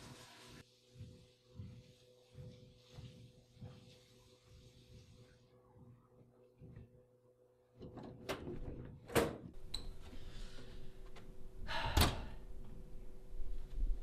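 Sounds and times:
door opening and shutting: 7.8s - 10.0s, 11.2s - 12.4s.

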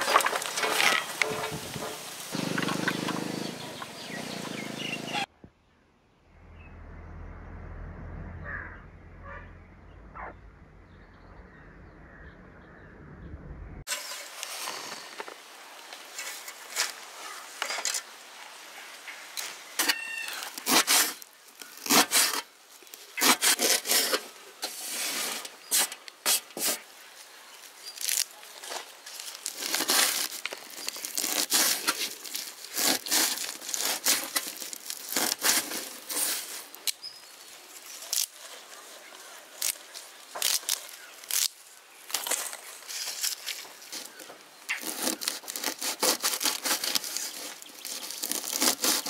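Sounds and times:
scraping and rubbing strokes: 19.8s - 22.5s, 23.1s - 26.9s, 28.6s - 36.8s, 42.1s - 49.0s.

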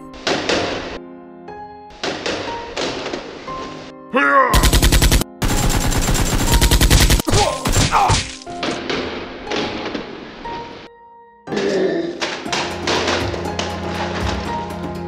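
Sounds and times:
automatic gunfire bursts: 4.6s - 7.3s.

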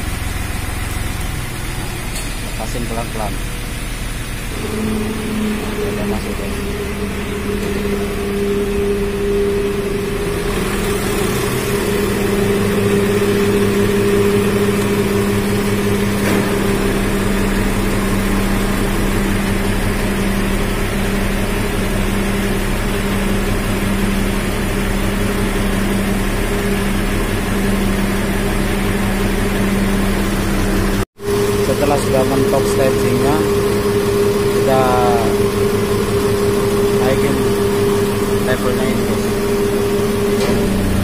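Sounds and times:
hydraulic pump hum: 0.0s - 41.0s
truck engine running: 0.0s - 41.0s
deep low note: 1.2s - 23.1s.

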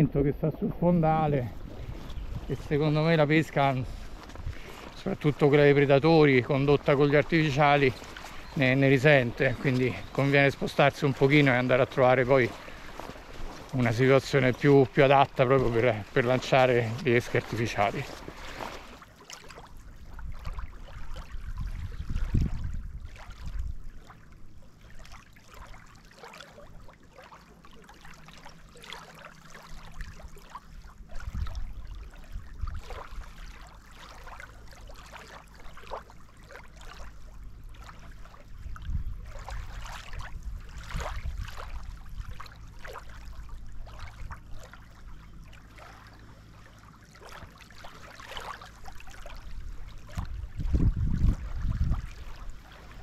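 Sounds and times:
wind buffeting microphone: 0.0s - 18.6s, 20.0s - 24.0s, 31.1s - 33.0s, 38.5s - 42.4s, 49.4s - 53.0s
lake water lapping and splashing: 0.0s - 53.0s.

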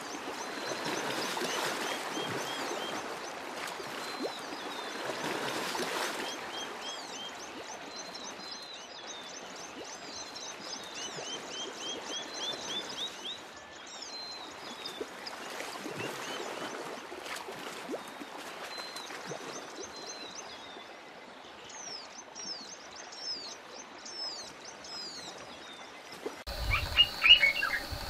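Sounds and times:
rushing water: 0.0s - 28.0s
birds chirping: 26.5s - 28.0s
high insect buzz: 26.5s - 28.0s
loud cluster of bird calls: 26.5s - 28.0s
low wind rumble: 26.5s - 28.0s.

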